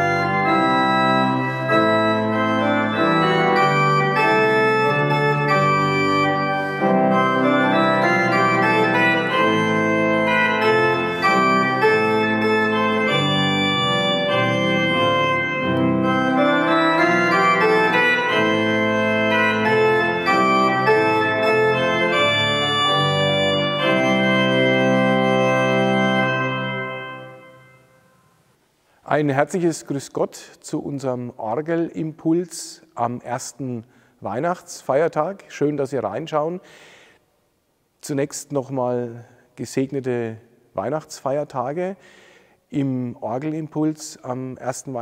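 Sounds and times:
pipe organ playing chords: 0:00.0 - 0:28.5.

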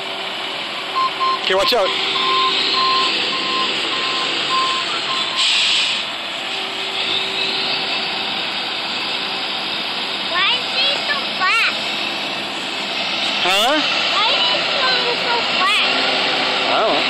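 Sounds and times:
diesel engine running: 0:00.0 - 0:17.0
backup alarm beeping: 0:00.9 - 0:05.8
short hiss: 0:05.4 - 0:06.1.

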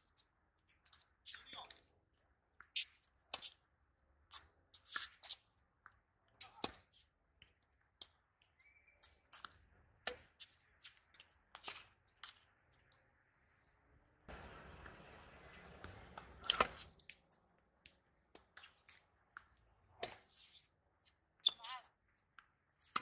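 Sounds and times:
ball bouncing on court: 0:14.3 - 0:16.9
racket striking tennis ball: 0:14.3 - 0:17.0.

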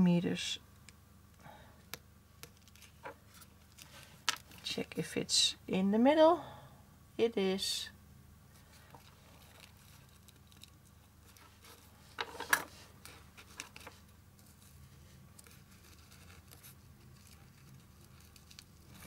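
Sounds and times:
ribbon rustling: 0:02.4 - 0:04.7, 0:08.6 - 0:19.0.

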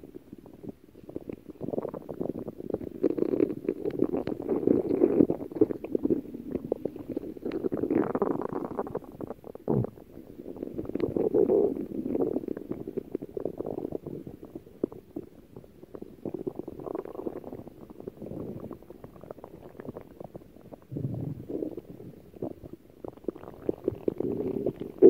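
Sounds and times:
stomach growling and gurgling: 0:00.0 - 0:25.0.

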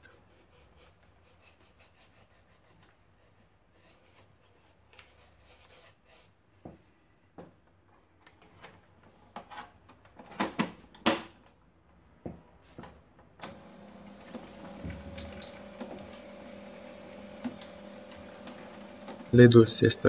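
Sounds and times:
printer motors and fan humming: 0:13.4 - 0:20.0.

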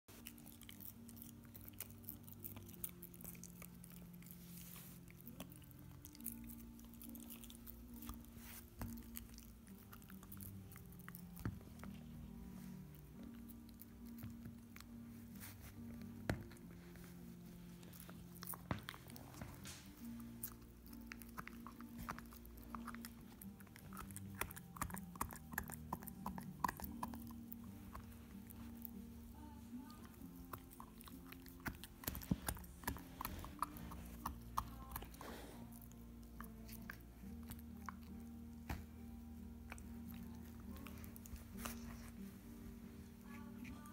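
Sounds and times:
faint low hum: 0:00.1 - 0:43.9
puppy gnawing chew: 0:00.1 - 0:43.9.

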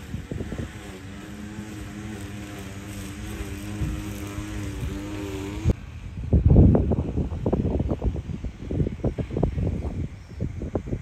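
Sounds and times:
engine drone: 0:00.0 - 0:11.0.

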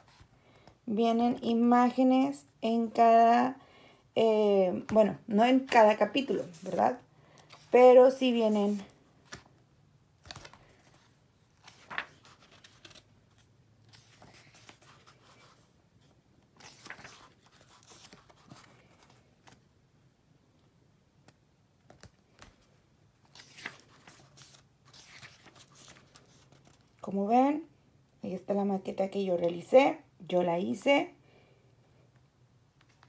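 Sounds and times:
book pages turning: 0:05.6 - 0:09.6, 0:10.2 - 0:19.7, 0:21.2 - 0:27.0.

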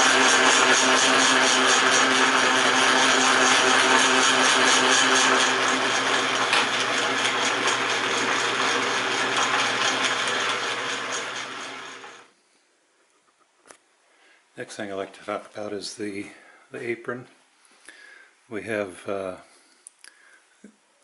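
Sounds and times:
lathe humming: 0:00.0 - 0:12.3
lathe click: 0:00.2 - 0:12.2.

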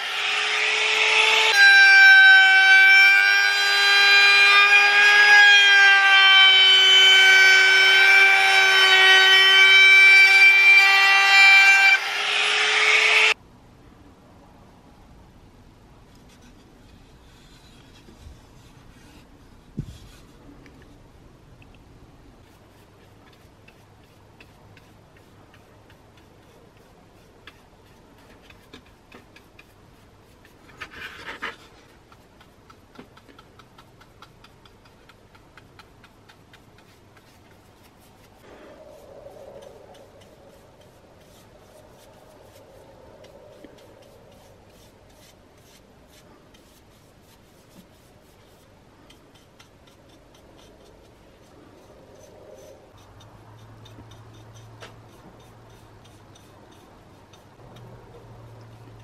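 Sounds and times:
brush scrape: 0:16.1 - 0:21.0, 0:22.4 - 0:59.0
paintbrush brushing on wood: 0:22.4 - 0:59.0.

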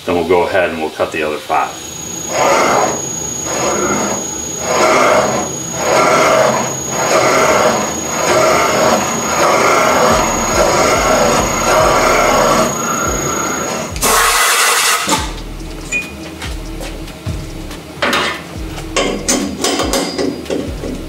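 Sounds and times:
steady high whistle: 0:01.3 - 0:16.2
metal cutting squeal: 0:01.5 - 0:16.2.

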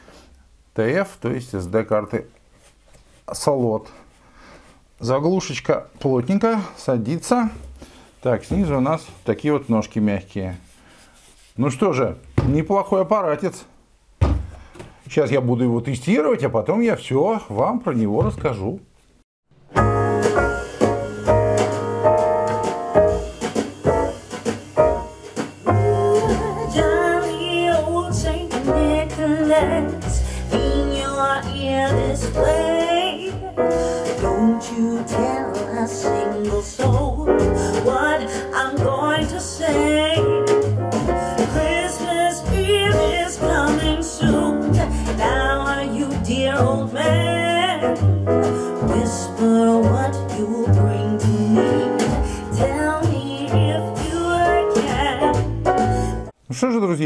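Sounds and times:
person singing: 0:25.6 - 0:40.5, 0:41.1 - 0:48.0, 0:48.7 - 0:55.4.

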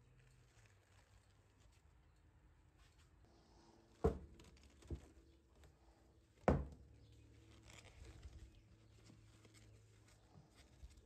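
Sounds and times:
objects knocking on wooden workbench: 0:06.5 - 0:06.8.

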